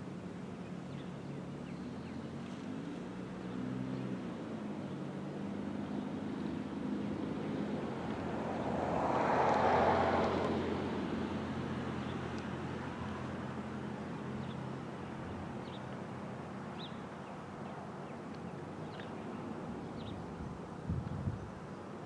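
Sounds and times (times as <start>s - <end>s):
vehicle passing by: 2.2s - 16.2s.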